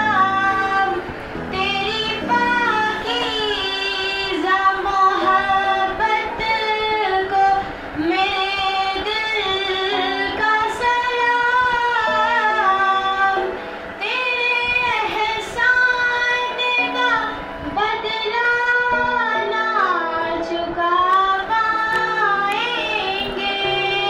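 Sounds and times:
girl singing: 0.0 - 24.0
instrumental backing held notes: 0.0 - 24.0.

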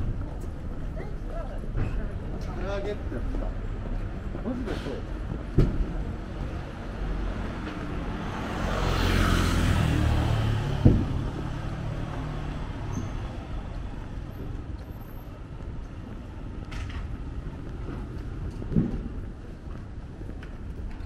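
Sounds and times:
vehicle passing: 6.2 - 14.9.

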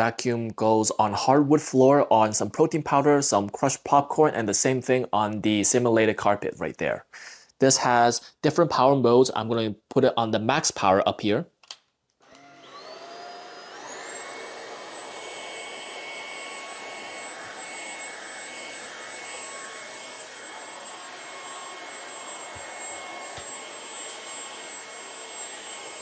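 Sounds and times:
vacuum cleaner whine: 12.2 - 26.0.

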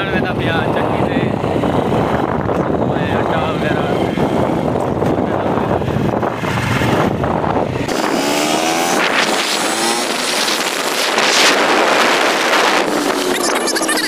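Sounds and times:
wind buffeting microphone: 0.0 - 13.6
small motorcycle engine revving: 5.8 - 14.0.

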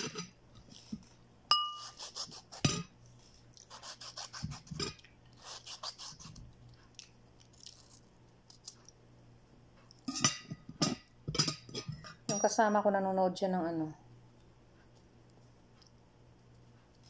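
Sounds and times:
ceramic plate clink: 1.5 - 1.9, 10.1 - 12.6.

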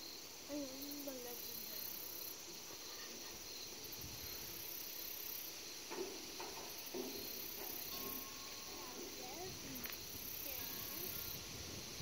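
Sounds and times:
insects chirring: 0.0 - 12.0.

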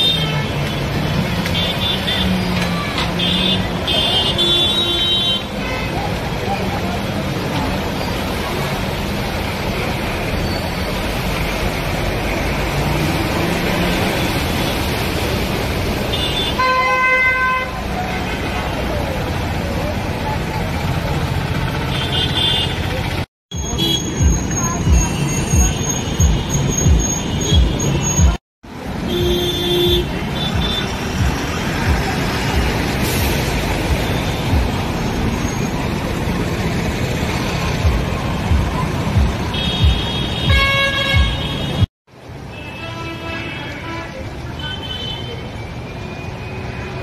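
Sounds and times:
road noise: 0.0 - 47.0
vehicles splashing through water: 0.0 - 47.0
loud vehicle horn honk: 16.1 - 18.4, 39.5 - 41.9.

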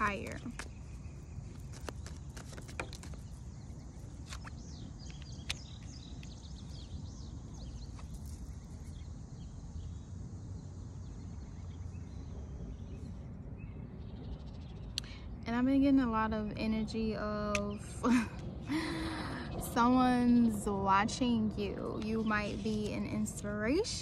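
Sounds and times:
low outdoor rumble: 0.0 - 24.0
deck of cards shuffled: 1.5 - 3.4, 4.0 - 6.0
bird chirps: 3.0 - 15.4.

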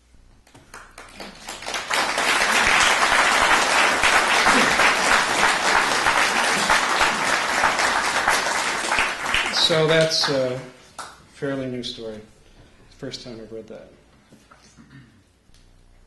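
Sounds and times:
audience applauding: 0.7 - 10.7.

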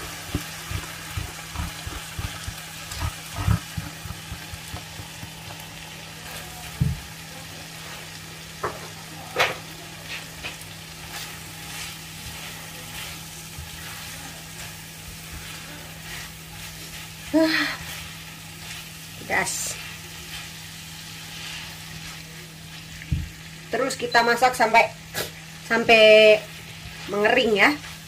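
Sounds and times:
utensil knocking against pan: 0.0 - 5.6
fish sizzling in a pan: 0.0 - 28.0.

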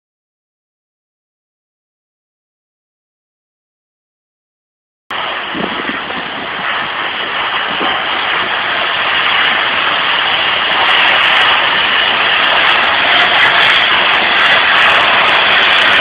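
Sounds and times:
high-pressure water jet hissing: 5.1 - 16.0.

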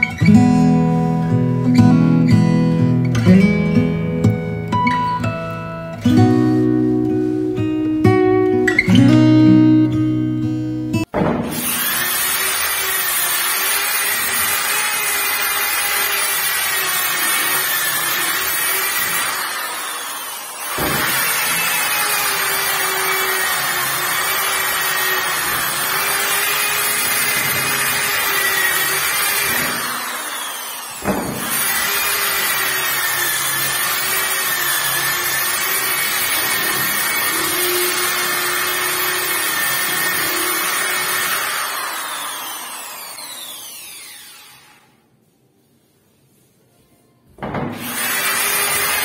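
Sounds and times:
sharp knock: 11.1 - 11.7
electric sander on wood: 11.5 - 44.9, 47.8 - 49.0.

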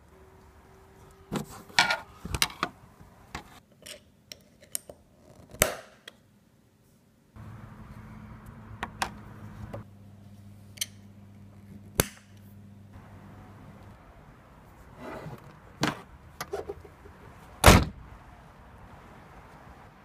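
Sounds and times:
low steady hum: 7.4 - 14.9.

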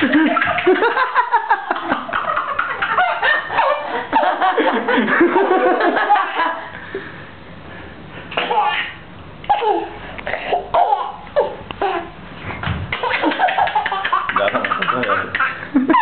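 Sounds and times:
woman and boy laughing: 0.0 - 6.7, 13.0 - 16.0.

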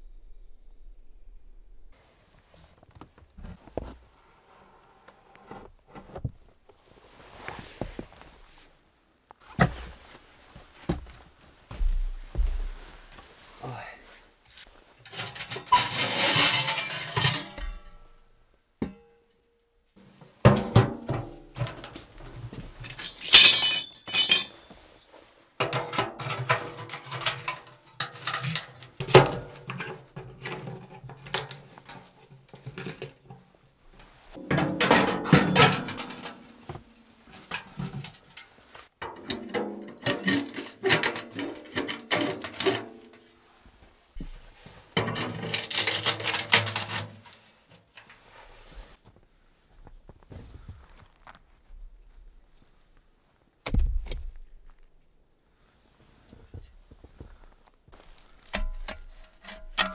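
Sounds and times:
metal stovepipes clanking and scraping: 15.0 - 18.2, 20.4 - 24.9, 25.6 - 33.4, 34.0 - 43.3, 44.2 - 48.2, 58.0 - 59.9.

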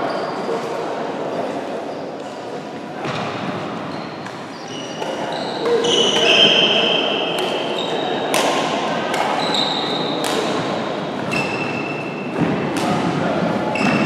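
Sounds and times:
shoes squeaking on floor: 3.8 - 8.2, 9.4 - 10.3, 11.2 - 12.3, 13.7 - 14.0
rackets hitting shuttlecock: 4.2 - 14.0.

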